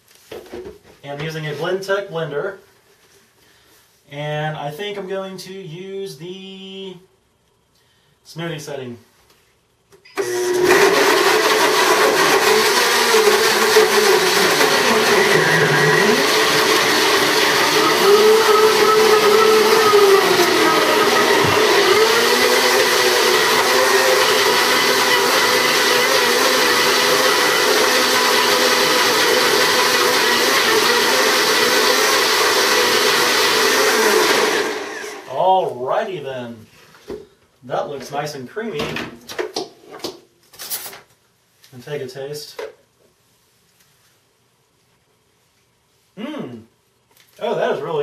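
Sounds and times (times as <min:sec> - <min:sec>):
blender motor running: 0:10.2 - 0:35.3.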